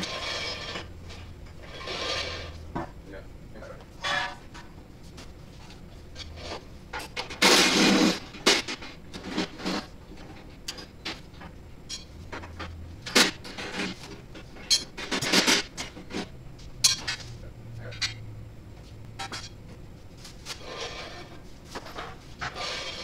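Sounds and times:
metal parts clanking: 0:14.6 - 0:16.0, 0:16.8 - 0:18.2.

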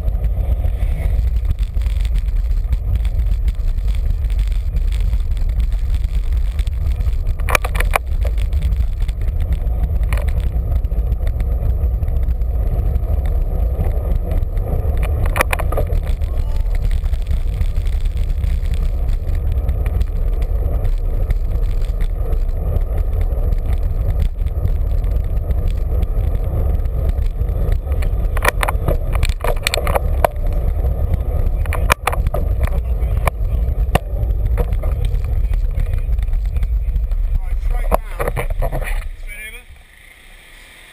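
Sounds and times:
wind and road noise rumble: 0:00.0 - 0:40.9.

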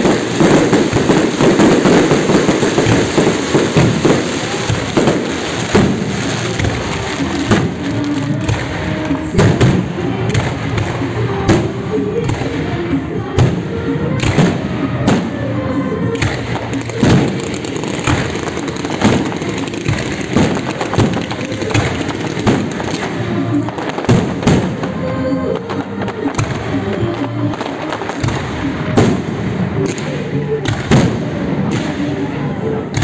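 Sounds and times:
fireworks bangs: 0:00.0 - 0:33.0
fireworks crackling: 0:00.0 - 0:33.0
music playing: 0:00.0 - 0:33.0.

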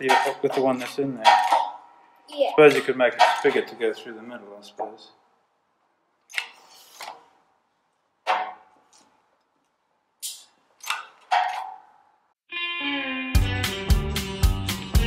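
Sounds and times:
sharp metallic cracks: 0:00.0 - 0:02.0.

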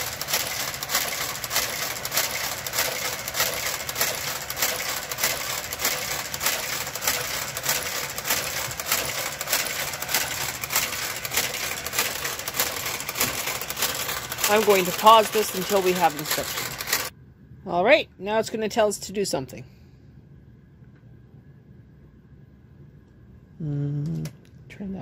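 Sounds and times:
knitting machine carriage clicking: 0:00.0 - 0:17.1.

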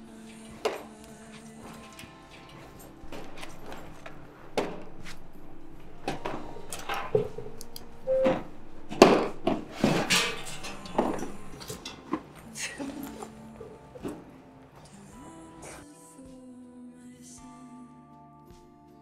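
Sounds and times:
objects and plastic tub clattering: 0:00.0 - 0:15.0
bag and jacket rustling: 0:00.0 - 0:15.1.

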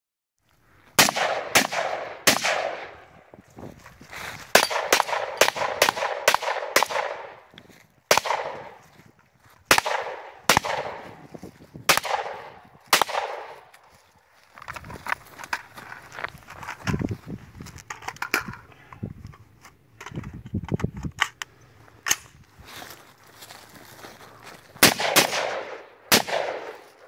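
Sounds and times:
gunshots with rolling echo: 0:01.0 - 0:03.3, 0:04.5 - 0:07.5, 0:08.1 - 0:08.9, 0:09.7 - 0:13.7, 0:24.8 - 0:27.0.

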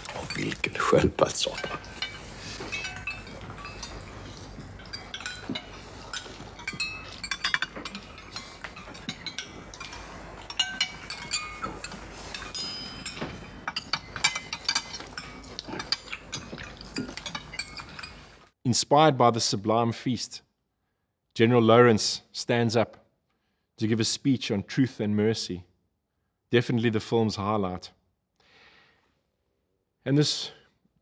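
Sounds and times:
spoons clinking on bowls: 0:00.0 - 0:18.4.

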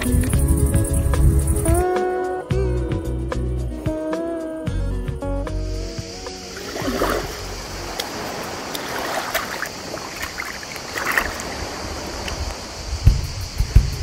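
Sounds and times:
small waves lapping shoreline: 0:05.9 - 0:13.9
brief water splashes: 0:06.5 - 0:12.6.

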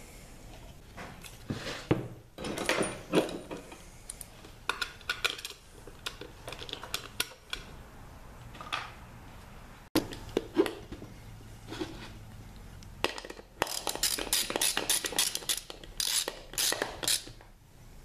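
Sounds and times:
metal tools knocking and clinking: 0:02.4 - 0:03.8.

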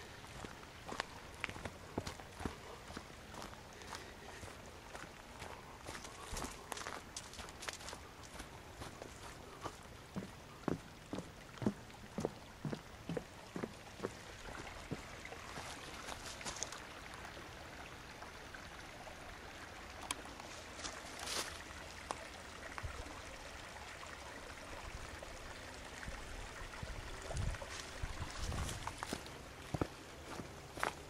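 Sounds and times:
creek running over rocks: 0:00.0 - 0:31.0
footsteps on dry leaves: 0:00.3 - 0:09.3, 0:15.6 - 0:16.8, 0:20.8 - 0:21.6, 0:27.7 - 0:31.0.

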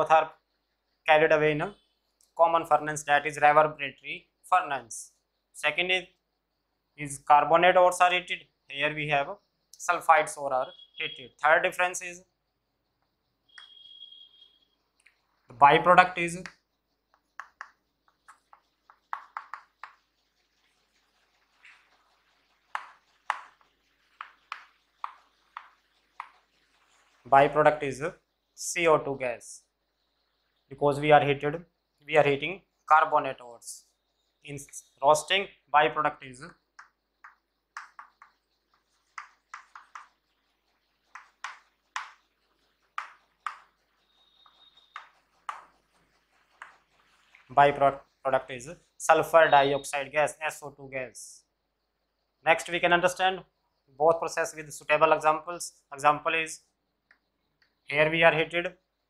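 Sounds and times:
chalk tapping on a blackboard: 0:16.4 - 0:27.0, 0:36.8 - 0:47.5.

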